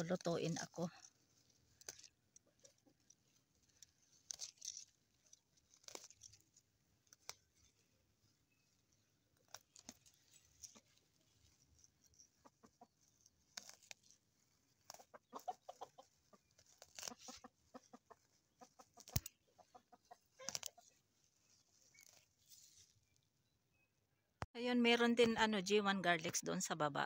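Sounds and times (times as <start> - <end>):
herb stems rustling and snapping: 0.0 - 23.2
chickens clucking: 12.2 - 13.7, 14.8 - 21.1.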